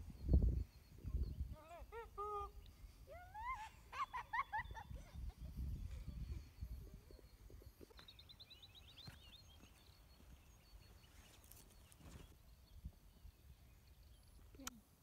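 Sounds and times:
faint clicks: 14.5s - 14.8s.

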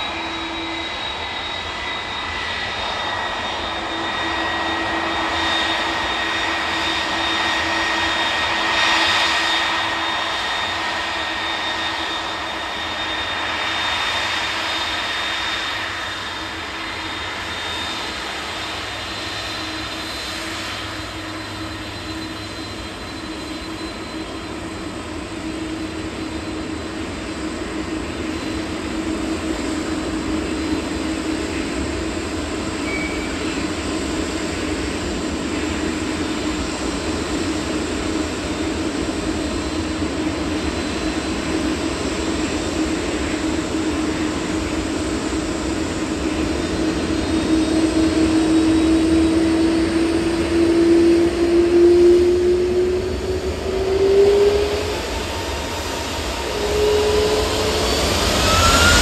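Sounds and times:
jet engines running: 0.0s - 59.0s
thin high whine: 32.8s - 33.8s, 50.2s - 59.0s.

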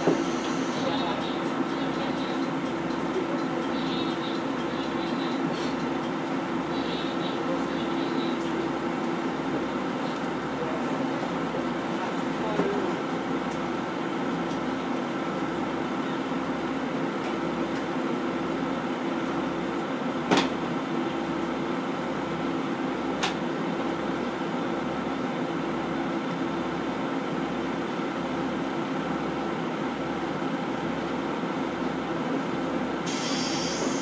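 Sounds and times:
diesel engine running: 0.0s - 20.2s.

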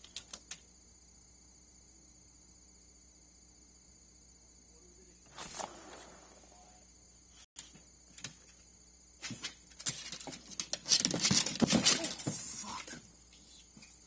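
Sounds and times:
person falling onto deck: 9.2s - 12.8s.

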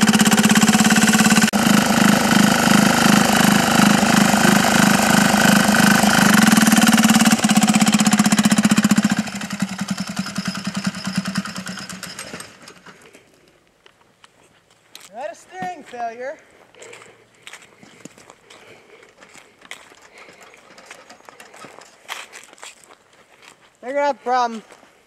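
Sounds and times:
small diesel engine running: 0.0s - 13.1s, 18.6s - 22.6s.

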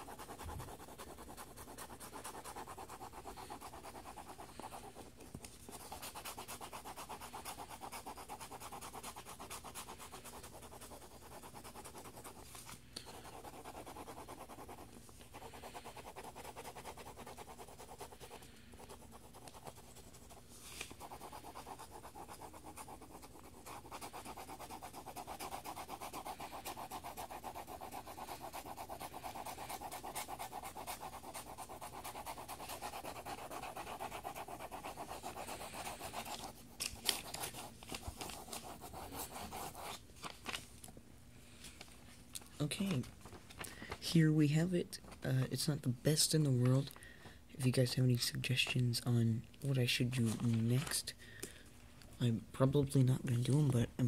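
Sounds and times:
pencil scratching on paper: 0.0s - 40.0s.

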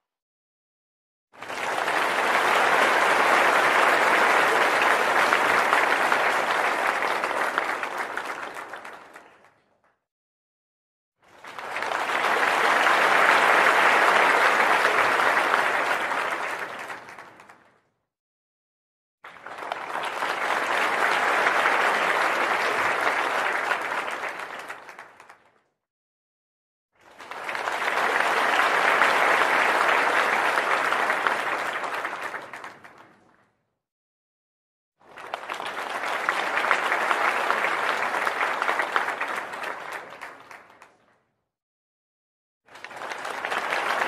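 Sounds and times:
crowd applause: 1.4s - 9.7s, 11.2s - 17.7s, 19.2s - 25.5s, 27.0s - 33.2s, 35.0s - 41.0s, 42.7s - 44.0s.

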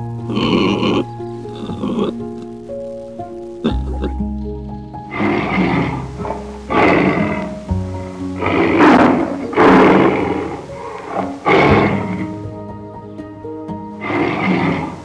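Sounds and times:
background music: 0.0s - 15.0s
tiger roaring and growling: 5.1s - 12.6s, 14.0s - 15.0s.

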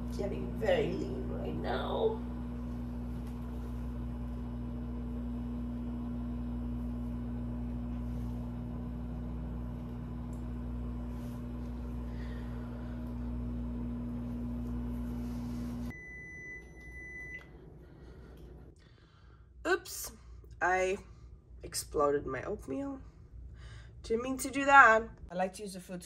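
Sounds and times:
microwave oven humming: 0.0s - 18.8s
microwave beeping: 15.7s - 17.8s.

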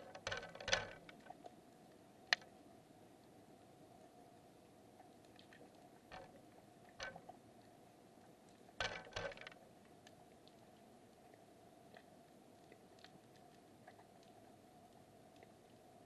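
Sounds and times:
underwater clicks and knocks: 0.0s - 1.5s, 5.4s - 7.4s, 8.8s - 9.6s.

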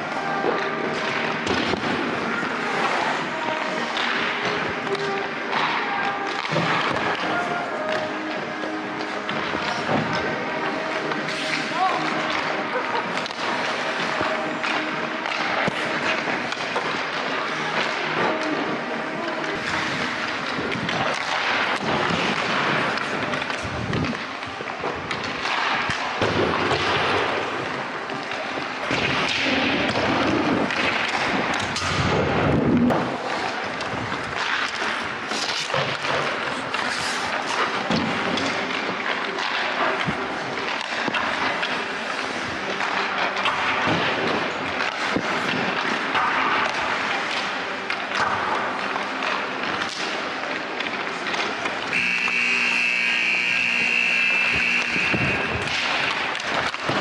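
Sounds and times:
ice skates scraping: 0.0s - 57.0s
knocks of pucks and sticks: 0.0s - 57.0s
pucks knocking against boards: 42.6s - 57.0s.

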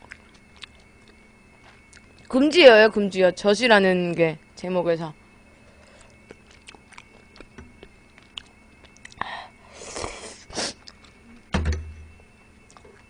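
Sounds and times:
soft chewing: 0.0s - 2.4s, 5.8s - 9.3s, 10.8s - 11.3s, 12.6s - 13.0s
loud thump: 11.5s - 12.0s.

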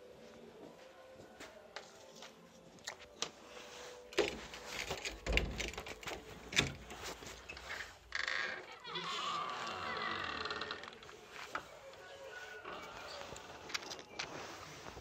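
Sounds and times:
rustling handling noise: 11.0s - 15.0s.

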